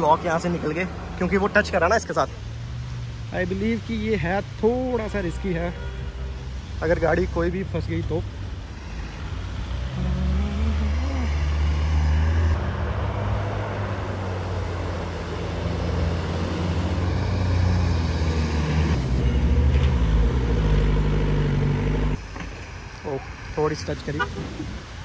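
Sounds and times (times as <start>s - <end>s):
suv engines revving: 6.1s - 25.0s.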